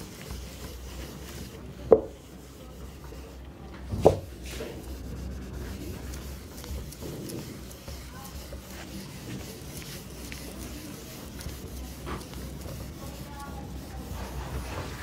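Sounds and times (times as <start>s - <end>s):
hand rubbing whiteboard: 0.0s - 15.0s.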